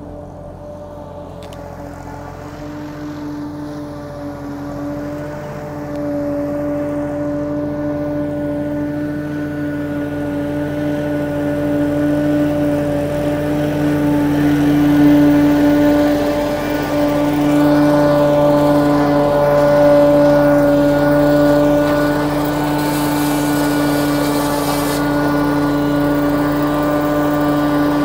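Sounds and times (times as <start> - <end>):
tractor diesel engine under load: 0.0 - 28.0.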